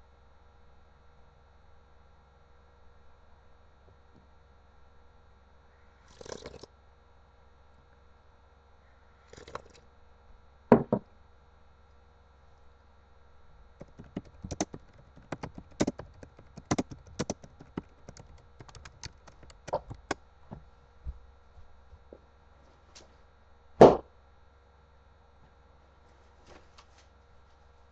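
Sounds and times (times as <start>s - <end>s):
faint electrical hum: 0.0s - 27.9s
knock: 10.7s - 11.0s, 23.8s - 24.0s
sharp clicks and taps: 13.8s - 20.2s.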